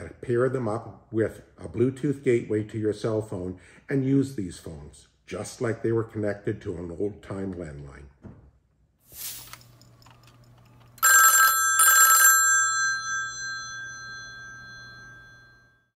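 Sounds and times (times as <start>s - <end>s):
telephone bell ringing: 11.0s - 16.0s.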